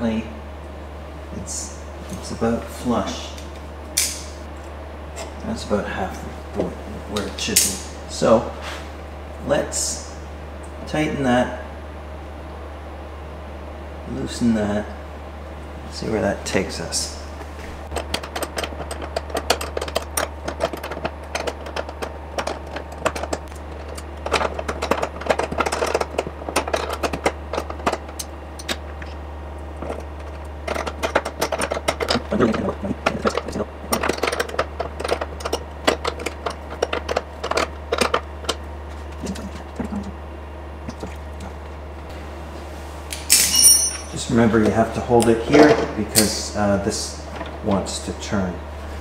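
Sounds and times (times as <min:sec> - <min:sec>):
metal hand tools clinking: 0:43.2 - 0:44.2.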